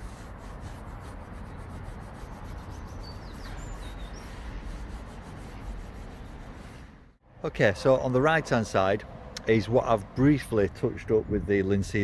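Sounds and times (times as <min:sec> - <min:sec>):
cloth rubbing wood: 0:00.0 - 0:07.0
bird chirping: 0:02.5 - 0:04.6.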